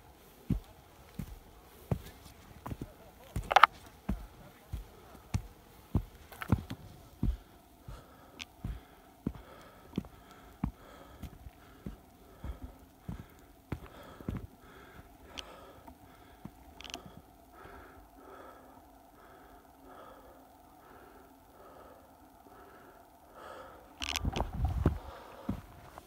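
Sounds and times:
footsteps on dirt trail: 0:00.0 - 0:17.2, 0:24.0 - 0:26.0
person breathing heavily: 0:00.2 - 0:26.0.

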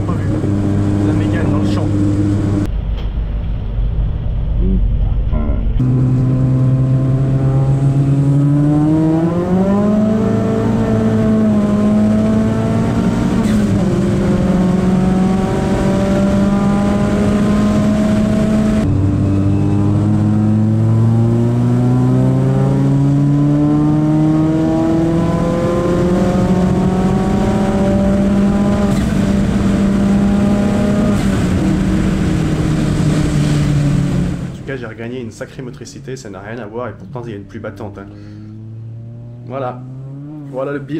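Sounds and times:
car engine accelerating hard: 0:00.0 - 0:02.7, 0:05.8 - 0:34.6, 0:37.7 - 0:40.9.

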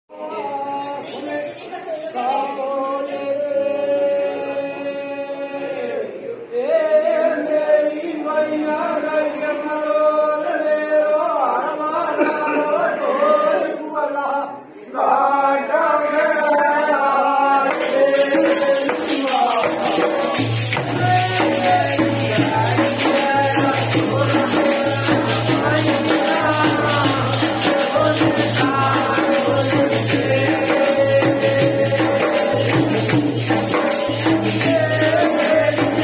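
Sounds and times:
men singing folk song: 0:02.6 - 0:36.0
fast rhythmic percussion: 0:17.0 - 0:36.0.

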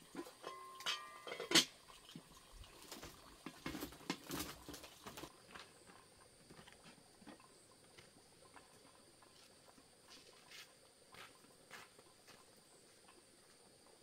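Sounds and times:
footsteps in sandals on dirt: 0:05.3 - 0:08.2, 0:09.2 - 0:13.7.

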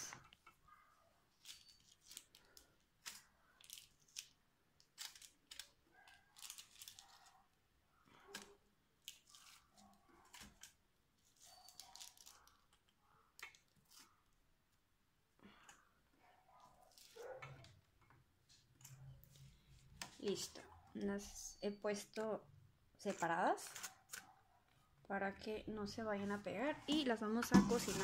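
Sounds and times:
aluminium foil crackling: 0:01.3 - 0:14.3.

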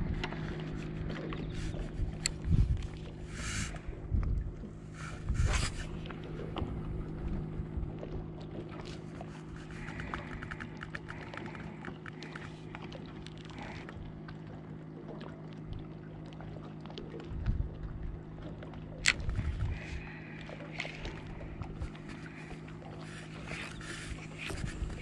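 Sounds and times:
low mechanical hum: 0:00.0 - 0:25.0
small clicks: 0:09.8 - 0:12.6.

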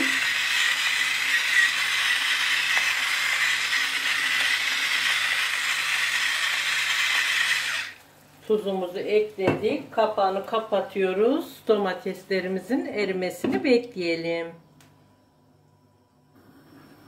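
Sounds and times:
electric salt grinder motor whining: 0:00.0 - 0:08.0.

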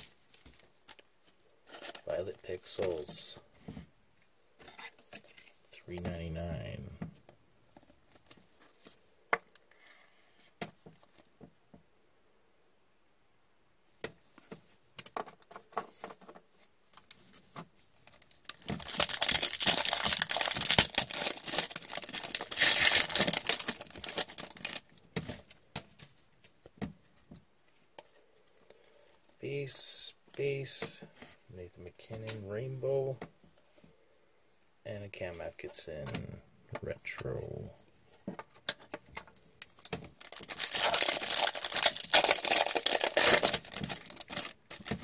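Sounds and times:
wrapper crinkling and tearing: 0:18.1 - 0:25.6, 0:39.6 - 0:45.0
cards shuffling: 0:38.6 - 0:45.0.

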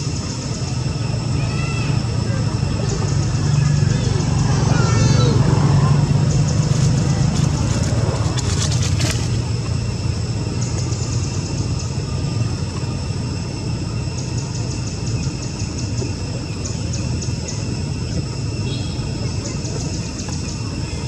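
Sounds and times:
distant low rumble: 0:00.0 - 0:21.0
high-pitched ticking chirps: 0:00.0 - 0:21.0
crackling clicks: 0:06.6 - 0:09.7.

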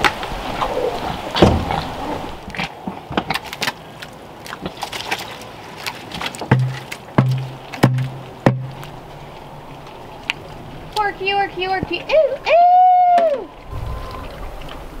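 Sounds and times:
pig eating: 0:00.5 - 0:09.0.

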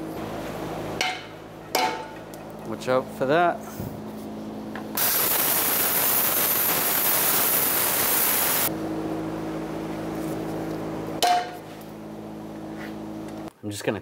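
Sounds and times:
gas torch flame hissing: 0:05.0 - 0:08.7.

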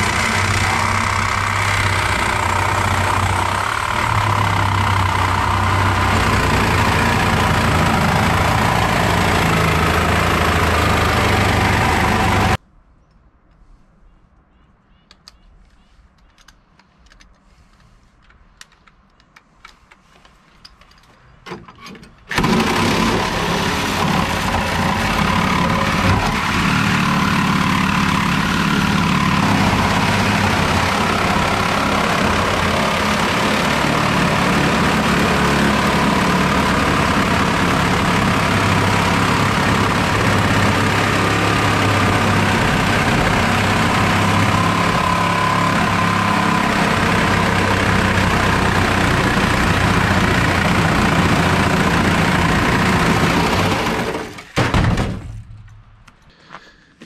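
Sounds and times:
angle grinder cutting steel: 0:00.0 - 0:12.6, 0:22.3 - 0:54.4.

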